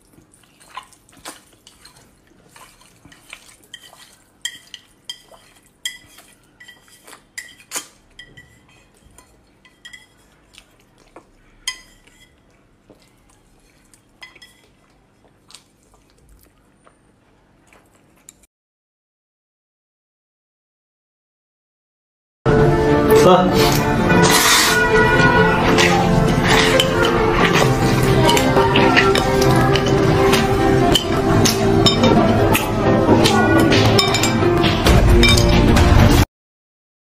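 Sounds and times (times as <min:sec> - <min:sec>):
noodles being slurped: 0:00.0 - 0:18.4, 0:23.6 - 0:34.8
chopsticks clinking against bowl: 0:00.6 - 0:14.8, 0:25.8 - 0:35.6.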